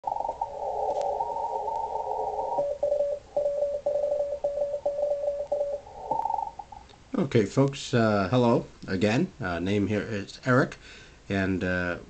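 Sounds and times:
radio band noise hiss: 0.1 - 8.3
morse code tones: 1.2 - 6.6.

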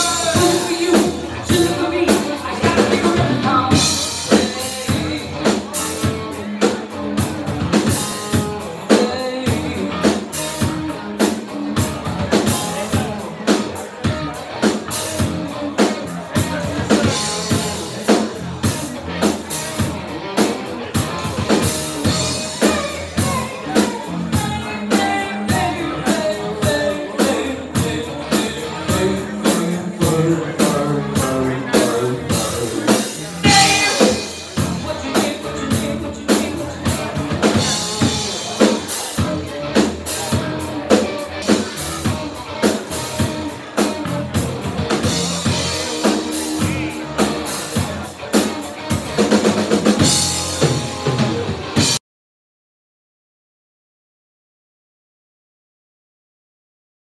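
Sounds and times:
woman singing: 0.0 - 5.2, 33.4 - 34.2
bass guitar: 0.0 - 52.0
drum kit beat: 0.0 - 52.0
electric guitar: 0.0 - 52.0.

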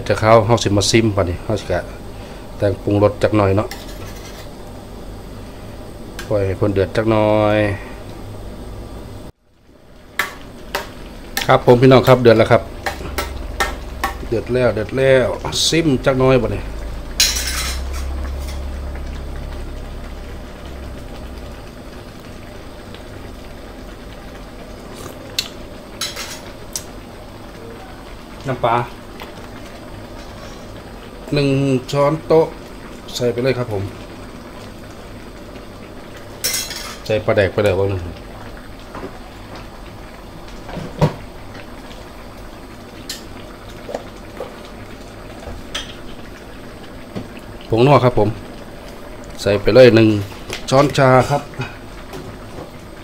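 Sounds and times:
curry bubbling in pot: 17.8 - 53.0.

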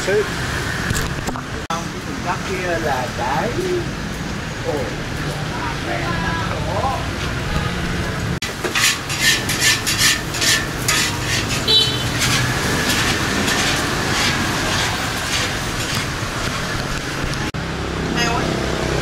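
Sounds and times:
metal utensils scraping pan: 8.4 - 17.1
food sizzling: 8.4 - 17.6.

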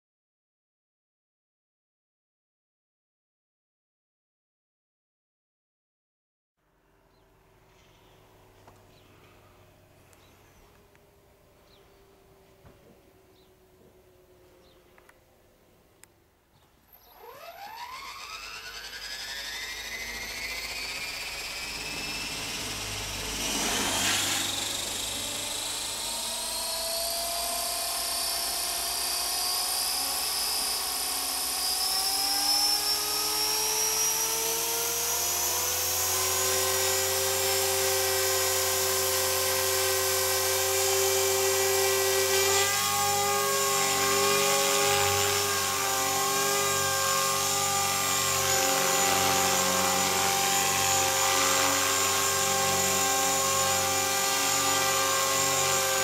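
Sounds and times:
low rotor hum: 16.9 - 56.0
rc helicopter motor whine: 16.9 - 56.0.

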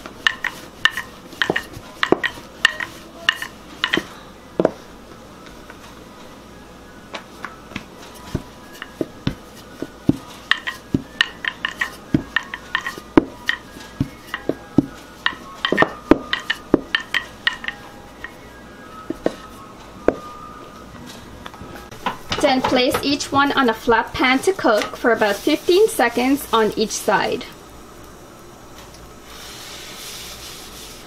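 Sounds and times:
rolling pin clacking on stone: 0.2 - 4.8, 8.7 - 18.4.

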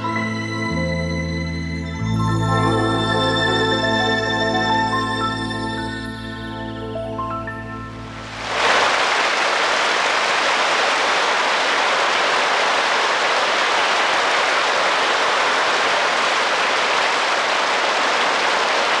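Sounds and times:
audience applauding: 8.3 - 19.0.

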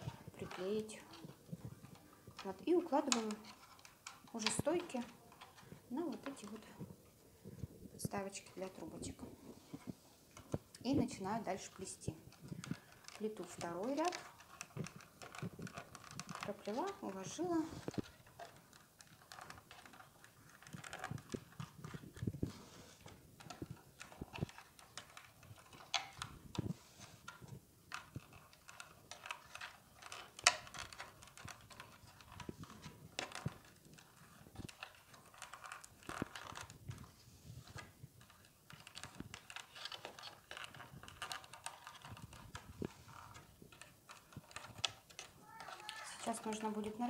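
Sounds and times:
paper tubes rustling: 0.0 - 47.0
tubes tapping against wood: 9.8 - 47.0.

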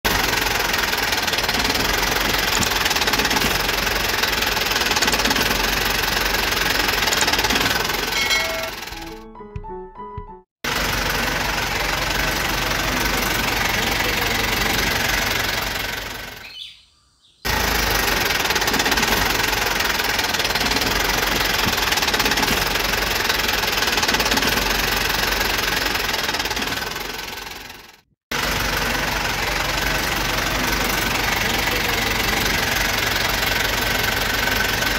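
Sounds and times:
engine running: 0.0 - 9.3, 10.6 - 16.7, 17.4 - 34.9.

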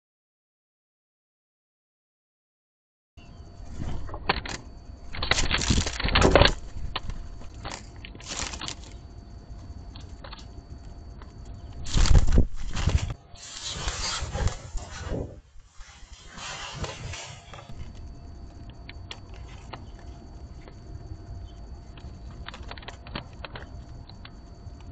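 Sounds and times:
bird wings flapping: 11.8 - 15.2.

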